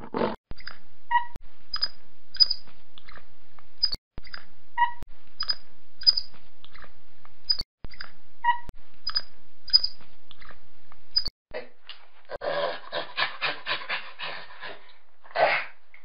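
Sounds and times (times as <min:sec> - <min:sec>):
monkey squeaking and chirping: 0:00.5 - 0:03.2, 0:03.8 - 0:06.9, 0:07.5 - 0:11.3.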